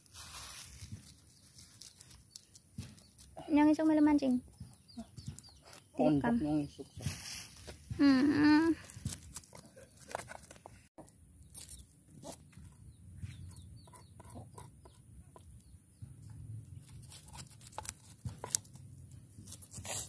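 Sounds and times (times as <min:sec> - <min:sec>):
chickens clucking: 0:12.1 - 0:16.4
knife scraping fish scales: 0:19.4 - 0:20.0.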